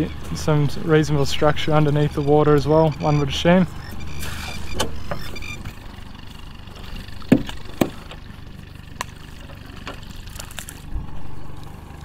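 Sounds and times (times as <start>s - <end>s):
boat motor idling: 0.0s - 12.0s
sharp knocks: 7.2s - 8.2s.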